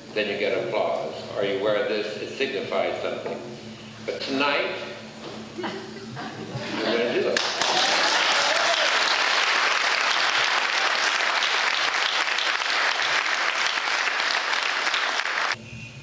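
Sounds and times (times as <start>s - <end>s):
audience applauding: 7.3s - 15.6s.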